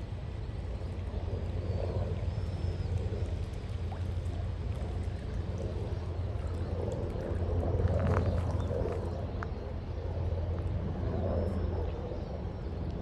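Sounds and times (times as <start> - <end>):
rippling water: 0.0 - 9.3.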